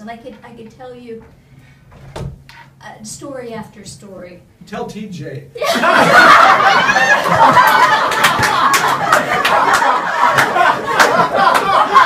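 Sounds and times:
group laughing: 0:05.6 - 0:12.0.

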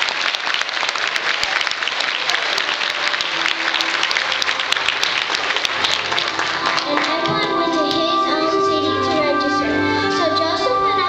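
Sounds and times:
audience clapping: 0:00.0 - 0:08.4.

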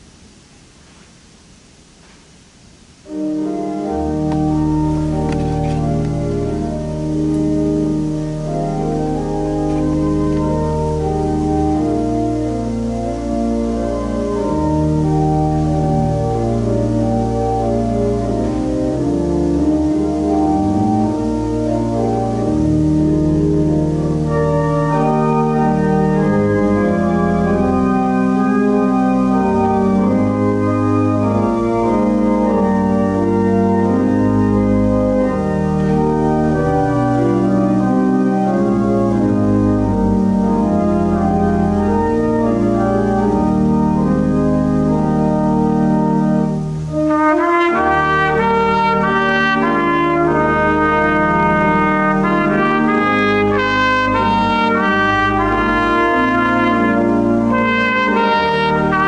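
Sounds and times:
pipe organ chords: 0:03.0 - 0:59.0
trumpet note: 0:44.9 - 0:59.0.

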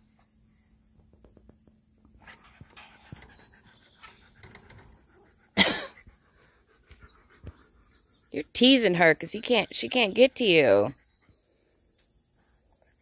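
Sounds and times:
dog panting: 0:02.2 - 0:11.6.

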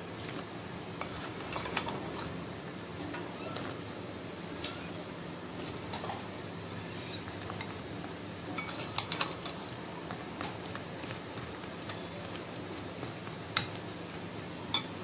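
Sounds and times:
spoon clinking against glass bowl: 0:14.7 - 0:14.9.

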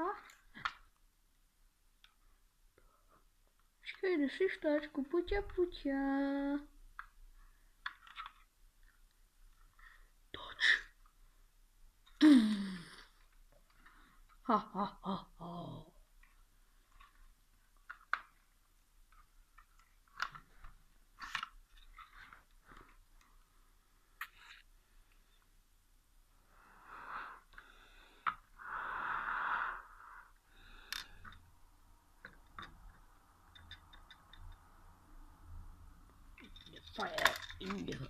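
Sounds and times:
handling clicks and rustles: 0:36.2 - 0:38.0.

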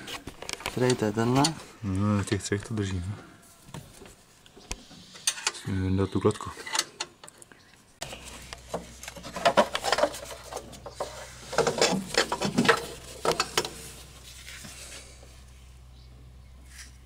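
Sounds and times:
clicks knocks and scrapes: 0:08.0 - 0:14.8.

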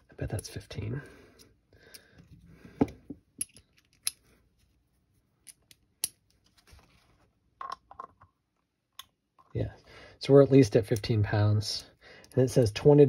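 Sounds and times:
small metal parts clinking: 0:03.4 - 0:04.3.

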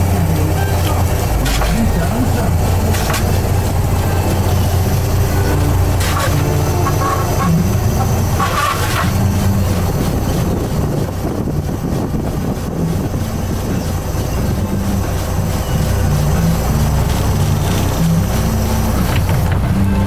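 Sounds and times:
boat engine running: 0:00.0 - 0:20.0
pot hauler pulling line: 0:00.0 - 0:20.0
high squeaks: 0:00.4 - 0:10.6.

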